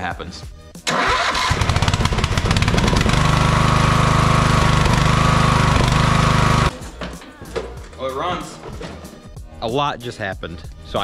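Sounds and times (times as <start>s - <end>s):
lawn mower engine running: 0.9s - 6.7s.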